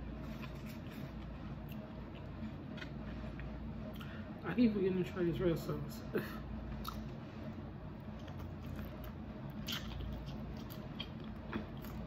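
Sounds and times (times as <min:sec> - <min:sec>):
low steady hum: 0:00.0 - 0:12.0
person chewing wet clicks: 0:06.8 - 0:07.1, 0:08.2 - 0:12.0.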